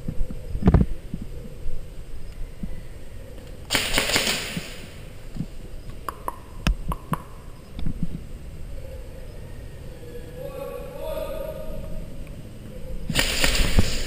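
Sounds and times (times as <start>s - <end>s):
hiss: 13.1s - 14.0s.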